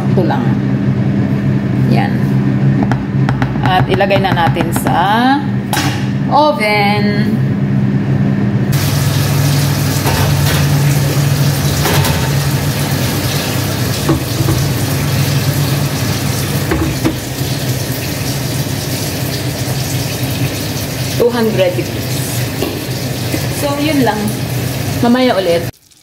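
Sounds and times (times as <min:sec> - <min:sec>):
oven fan rushing: 0:00.0 - 0:25.7
oven door shutting: 0:08.8 - 0:15.7, 0:16.6 - 0:17.2
baking pan knocks: 0:14.1 - 0:14.8, 0:16.7 - 0:17.2.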